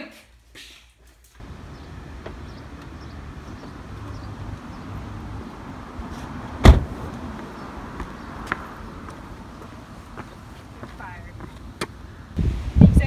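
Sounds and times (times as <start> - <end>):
car door slamming: 6.6 - 7.1.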